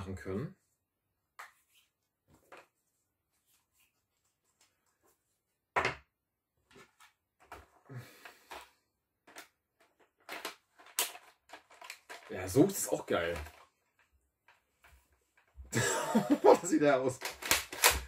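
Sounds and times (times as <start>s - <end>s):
plastic toy parts clicking: 10.2s - 12.3s, 17.1s - 18.0s.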